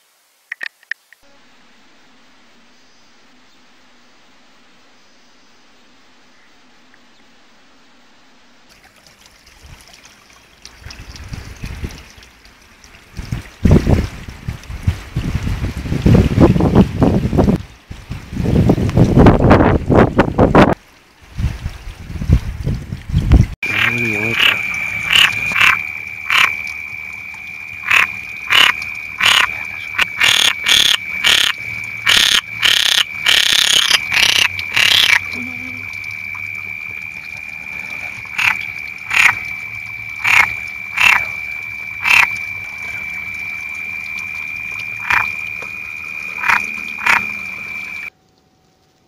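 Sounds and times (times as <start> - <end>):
continuous high-pitched trill: 23.6 - 48.1
frogs croaking: 23.6 - 48.1.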